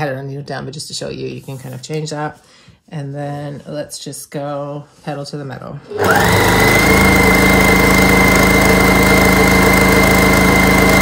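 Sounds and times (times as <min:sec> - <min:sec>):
sewing machine motor whine: 0:05.9 - 0:11.0.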